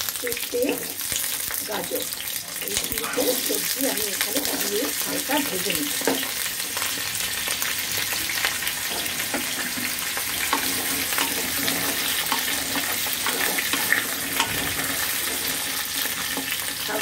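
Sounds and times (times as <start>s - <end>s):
vegetables sizzling in hot oil: 0.0s - 17.0s
wooden spatula scraping pan: 8.8s - 16.6s.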